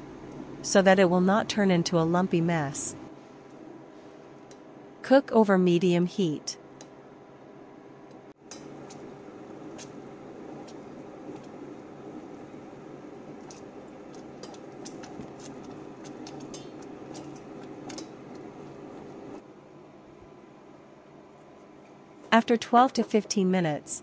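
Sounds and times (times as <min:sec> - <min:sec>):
steady hum: 0:00.0 - 0:24.0
sauce cooking in a pot: 0:08.4 - 0:19.4
spatula stirring: 0:13.2 - 0:19.3.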